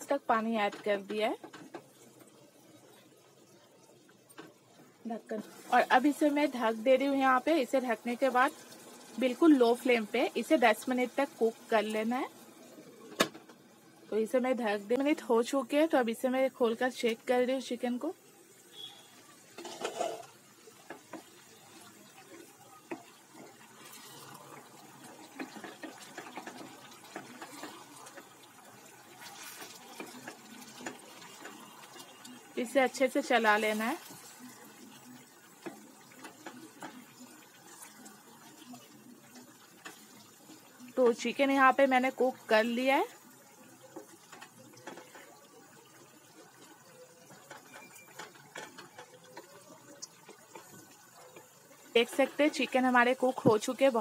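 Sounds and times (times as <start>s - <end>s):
spatula stirring thick curry: 18.7s - 53.9s
wooden spoon scraping pot: 18.8s - 21.3s.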